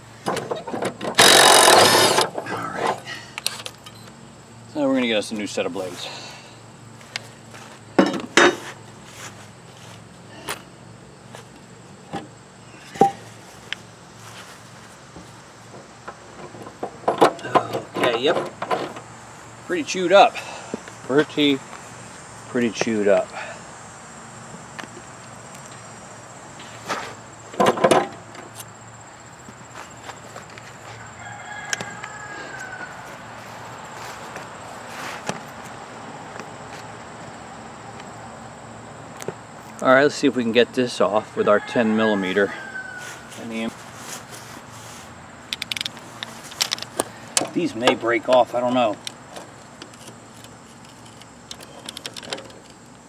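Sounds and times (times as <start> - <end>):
spindle turning in bad bearings: 1.1 - 2.3
loud rasping noises: 1.1 - 3.0
rooster crowing: 30.8 - 34.2, 41.2 - 43.4.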